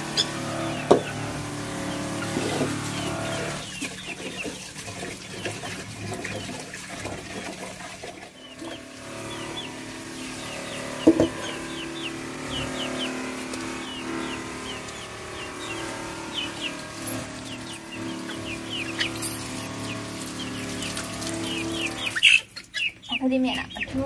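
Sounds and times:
hen clucking: 21.5 - 24.0.

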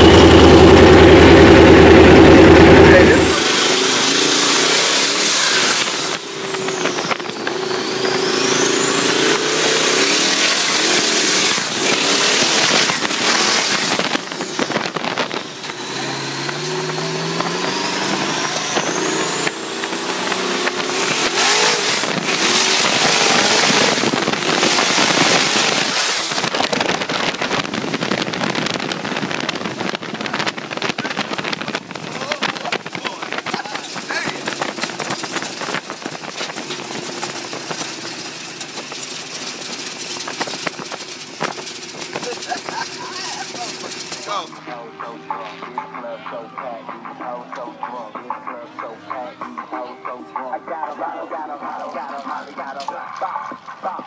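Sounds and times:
turbocharger whistle: 0.0 - 27.0
wind and tyre rush: 0.0 - 44.6
truck engine running hard: 0.0 - 54.0.

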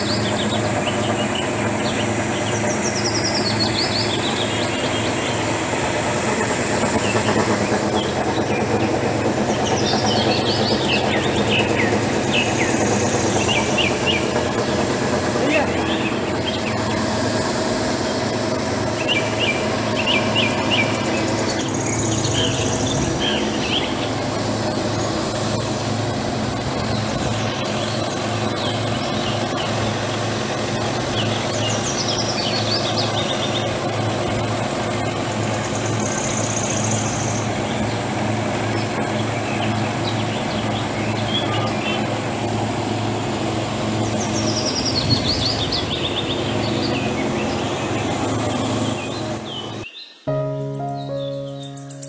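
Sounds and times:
birds chirping: 0.0 - 5.8, 6.8 - 25.4, 43.9 - 52.0
small engine running: 0.0 - 49.9.

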